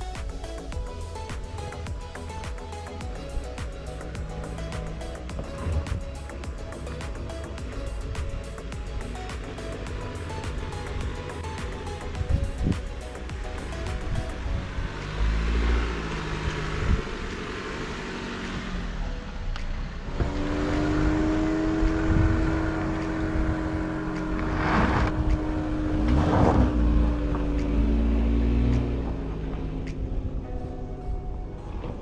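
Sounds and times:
car engine and road noise: 0:00.0 - 0:32.0
rushes of noise: 0:20.0 - 0:30.2.

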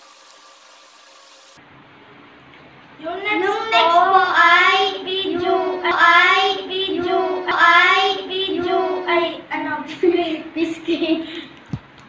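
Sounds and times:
child singing in high voice: 0:03.0 - 0:10.9.

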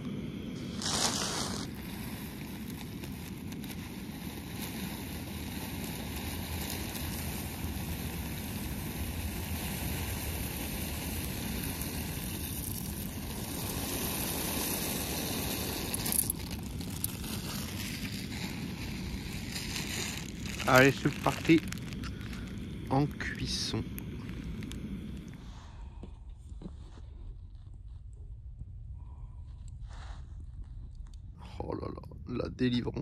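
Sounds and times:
water boiling: 0:00.6 - 0:25.4.

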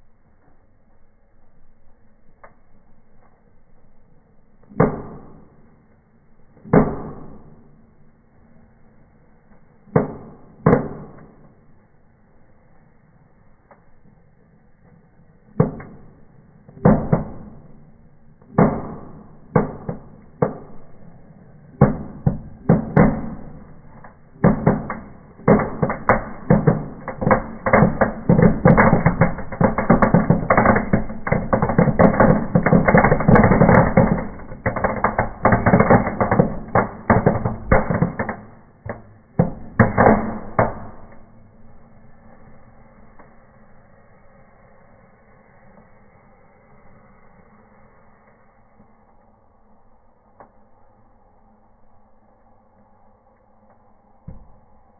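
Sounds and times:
firecrackers bursting: 0:15.4 - 0:48.8.

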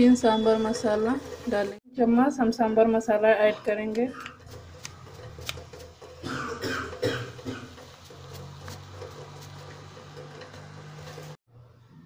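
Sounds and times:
spices sizzling in hot oil: 0:00.0 - 0:01.8, 0:04.4 - 0:11.4
person coughing: 0:06.2 - 0:07.7.

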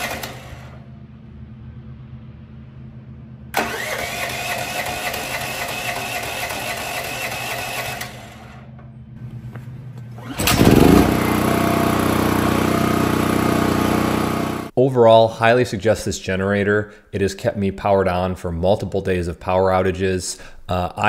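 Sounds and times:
generator starter cranking: 0:00.0 - 0:00.8, 0:03.5 - 0:08.4, 0:10.2 - 0:14.7
generator engine running: 0:10.1 - 0:14.7.

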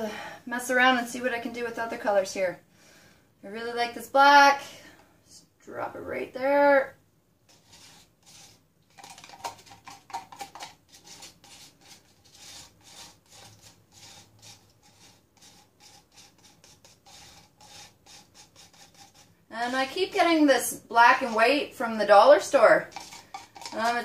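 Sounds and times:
wooden stick scraping paint: 0:07.5 - 0:24.0.

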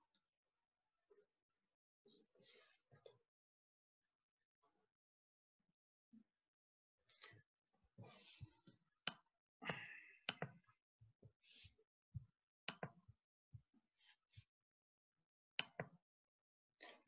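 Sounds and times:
soft breaths: 0:08.0 - 0:08.8.

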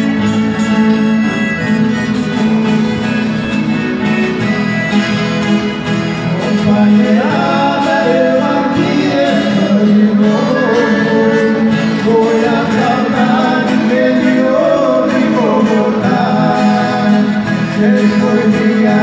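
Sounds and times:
accordion: 0:00.0 - 0:19.0
acoustic guitars: 0:00.0 - 0:19.0
person singing: 0:06.2 - 0:19.0.

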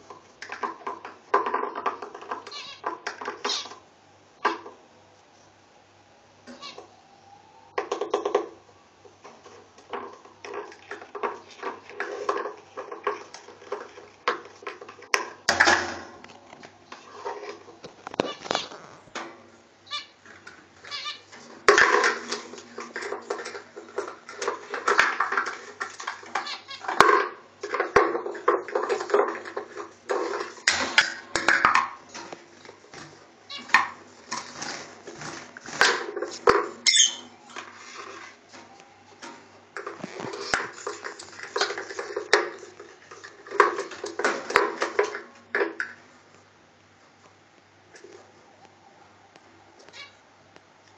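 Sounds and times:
lovebird chattering and squawking: 0:02.5 - 0:03.8, 0:18.1 - 0:19.2, 0:19.8 - 0:20.2, 0:20.9 - 0:21.3, 0:36.8 - 0:37.3, 0:49.9 - 0:50.2.

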